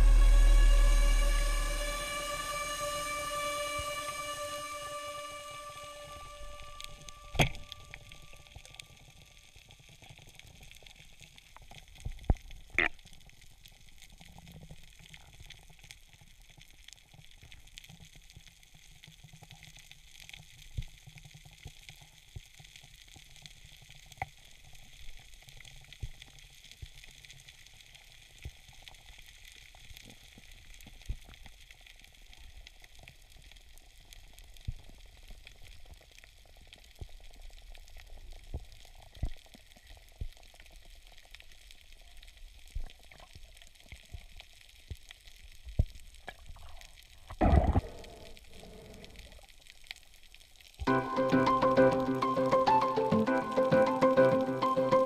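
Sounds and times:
loud thump: 47.4s - 48.0s
underwater hiss: 47.6s - 49.5s.

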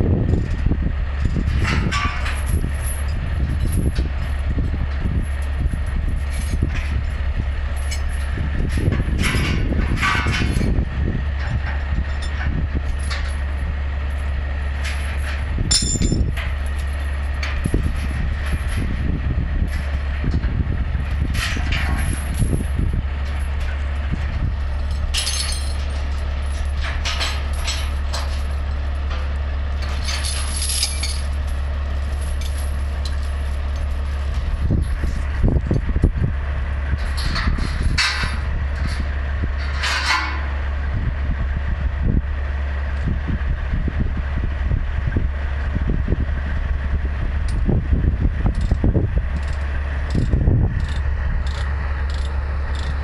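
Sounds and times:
diesel truck engine idling: 0.0s - 53.0s
clinks: 1.2s - 10.8s, 11.4s - 18.9s, 24.6s - 35.8s, 49.4s - 53.0s.

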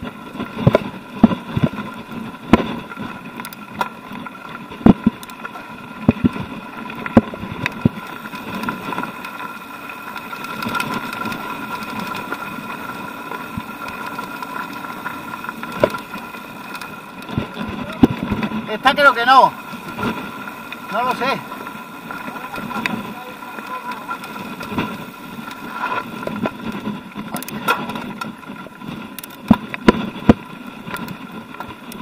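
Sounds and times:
bike knocking and rattling on rocks: 0.0s - 32.0s
bike whirring buzz: 0.0s - 32.0s
tyres crunching on loose stones: 0.6s - 32.0s.

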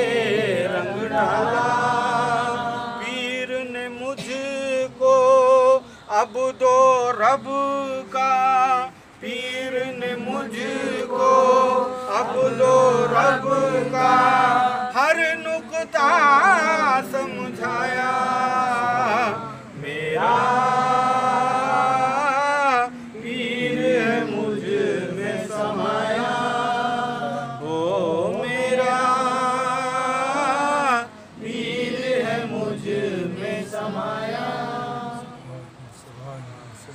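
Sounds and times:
man singing with vibrato: 0.0s - 34.2s
singer breathing: 5.8s - 6.1s, 8.9s - 9.2s, 22.9s - 23.2s.

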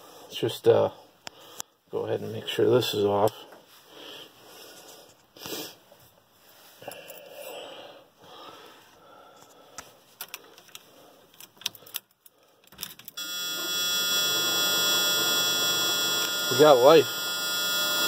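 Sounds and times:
keys jangling and clicking: 10.2s - 13.2s
dashboard warning buzzer: 13.2s - 18.0s.

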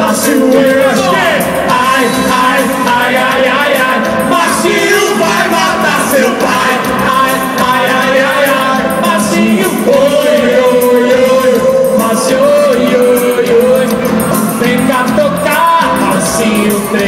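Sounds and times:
live band music over loudspeakers: 0.0s - 17.0s.

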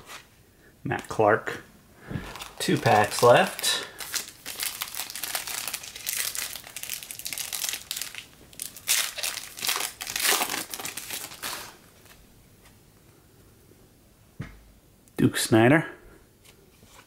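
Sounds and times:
card pack wrapper crinkling: 2.2s - 12.2s.

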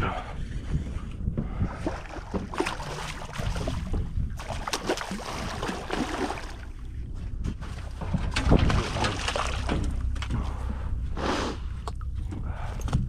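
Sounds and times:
wind on microphone: 0.0s - 5.9s
fish splashing in water: 2.0s - 6.7s.

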